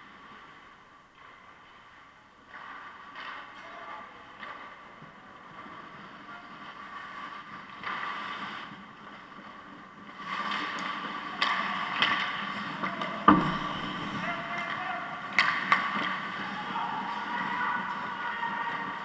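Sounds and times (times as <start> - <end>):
stick and puck clacks: 10.2 - 16.5.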